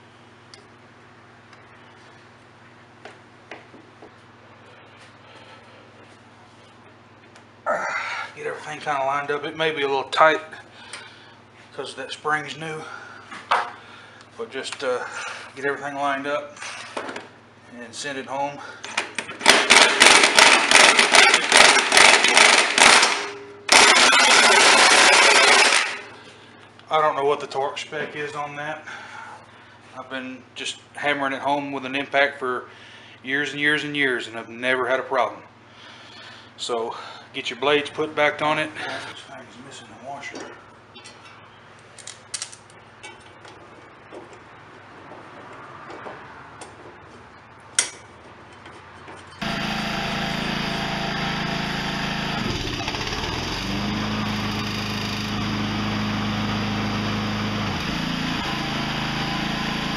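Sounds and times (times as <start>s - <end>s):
impact wrench hammering: 19.2s - 26.1s.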